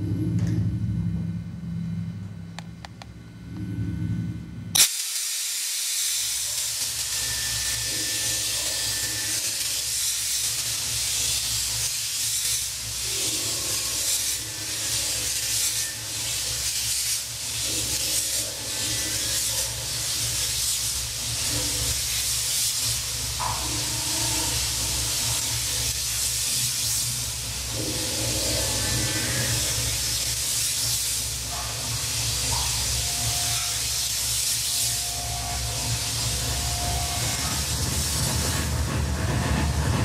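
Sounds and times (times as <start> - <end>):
low hum: 0.0 - 4.8
steady hissing noise: 4.7 - 40.0.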